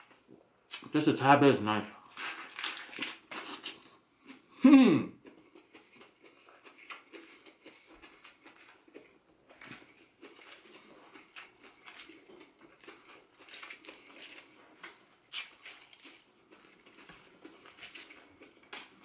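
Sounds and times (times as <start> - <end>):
soft chewing: 2.1 - 4.6, 5.2 - 19.0.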